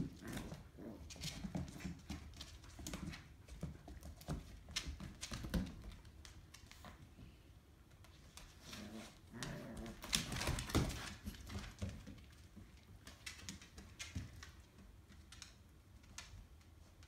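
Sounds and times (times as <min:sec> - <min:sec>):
dogs growling: 0:00.0 - 0:01.1, 0:08.7 - 0:10.1
claws scrabbling on vinyl floor: 0:00.0 - 0:17.0.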